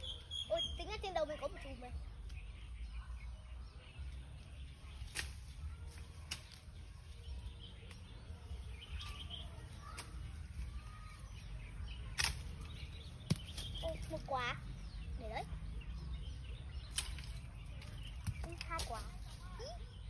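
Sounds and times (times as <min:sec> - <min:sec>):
faint bird chirps: 0:00.0 - 0:20.0
bamboo pole knocking branches: 0:04.9 - 0:07.2, 0:09.0 - 0:10.8, 0:11.7 - 0:14.4, 0:16.8 - 0:19.4.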